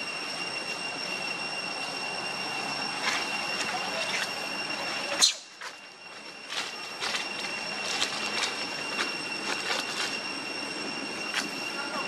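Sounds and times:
high-pitched whine: 0.0 - 12.0
monkeys scrambling over dry leaves: 2.9 - 12.0.

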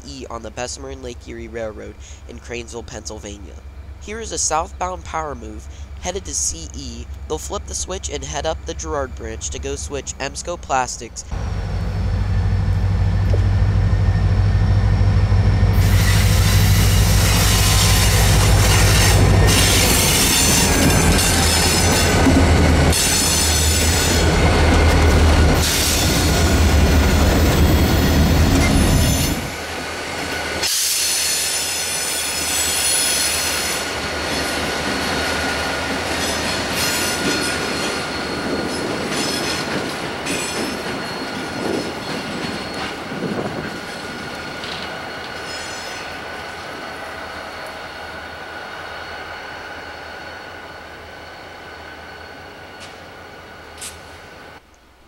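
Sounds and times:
diesel locomotive engine drone: 0.0 - 54.7
wheels squealing on rail: 11.4 - 54.6.

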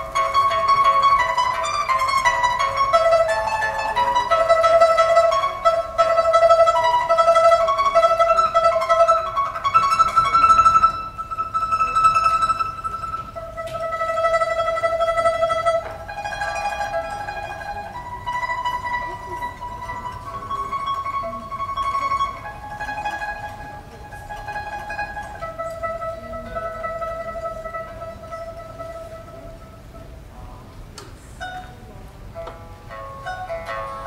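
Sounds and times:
pipa playing slow melody: 0.0 - 30.6, 31.3 - 34.0.

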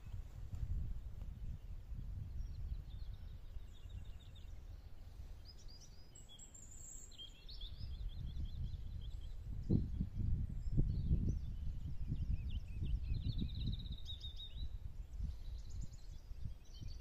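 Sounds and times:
wind buffeting microphone: 0.0 - 6.2, 7.4 - 17.0
small birds chirping: 0.0 - 17.0.

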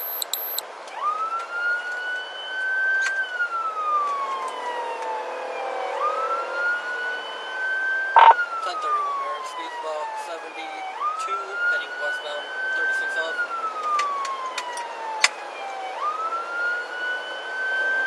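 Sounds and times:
road noise: 0.0 - 11.7
police siren wailing: 0.0 - 18.0.

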